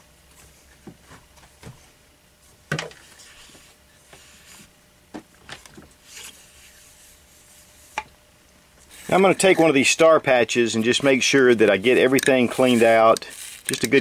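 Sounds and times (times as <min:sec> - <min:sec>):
cord rubbing: 0:10.8 - 0:14.0.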